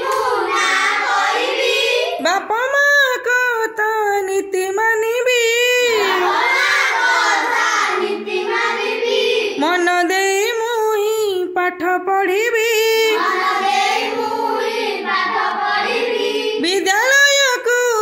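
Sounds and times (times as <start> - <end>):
children chanting a rhyme: 0.0 - 2.6, 5.6 - 9.8, 13.0 - 16.9.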